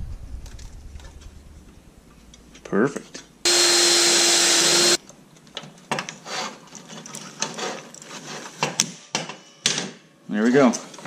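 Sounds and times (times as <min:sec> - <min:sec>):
cordless drill drilling metal: 0:03.5 - 0:05.0.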